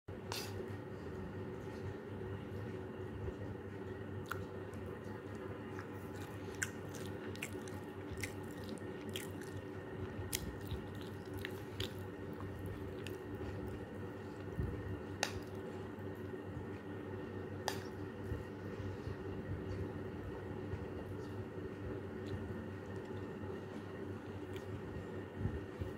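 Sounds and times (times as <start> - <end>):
steady low hum: 0.1 - 25.9
chewing: 4.2 - 14.6.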